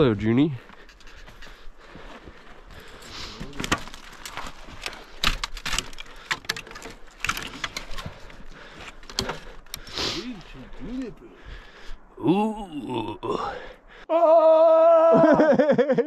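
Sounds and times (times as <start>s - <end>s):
climbing hardware clinking: 2.8s - 9.9s.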